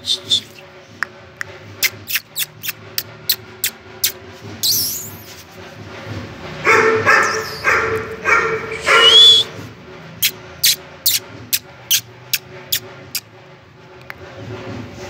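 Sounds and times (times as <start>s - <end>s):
puppy chirping: 0.0s - 0.8s, 1.4s - 5.3s, 6.8s - 9.5s, 10.2s - 13.2s
puppy barking: 6.6s - 9.5s.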